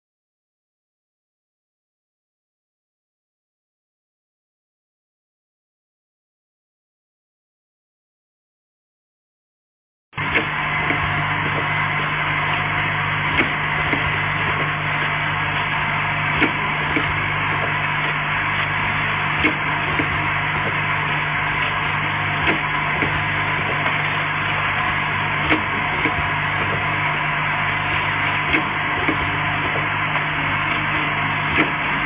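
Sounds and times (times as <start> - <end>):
low hum: 10.2 - 32.0
machine whirring: 10.2 - 32.0.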